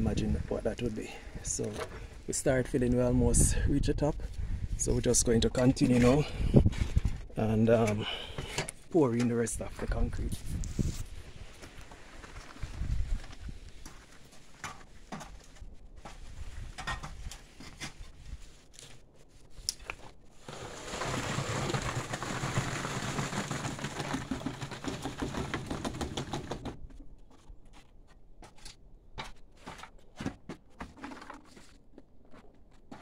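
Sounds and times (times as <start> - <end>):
knocks and scrapes: 5.0 - 19.0, 19.8 - 33.0
wet concrete pouring from bucket: 20.4 - 26.1.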